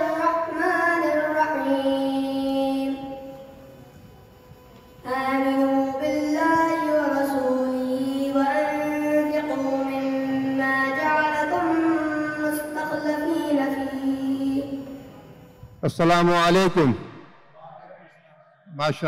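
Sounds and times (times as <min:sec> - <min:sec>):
boy chanting into microphone: 0:00.0 - 0:03.5, 0:05.0 - 0:15.0.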